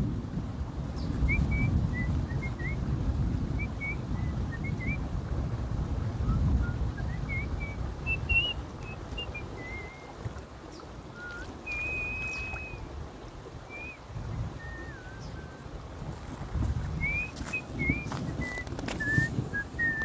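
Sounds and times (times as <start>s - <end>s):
wind rumbling on microphone: 0.0s - 20.0s
person whistling: 8.1s - 8.6s, 9.2s - 10.1s, 11.2s - 12.8s, 13.7s - 14.0s, 14.6s - 15.6s, 17.0s - 20.0s.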